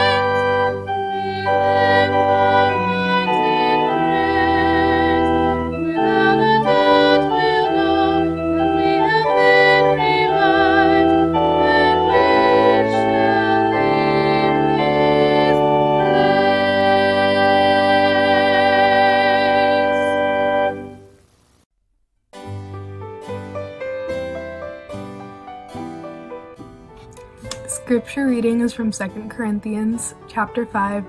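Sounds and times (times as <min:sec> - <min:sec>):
church organ playing hymn chords: 0:00.0 - 0:21.1.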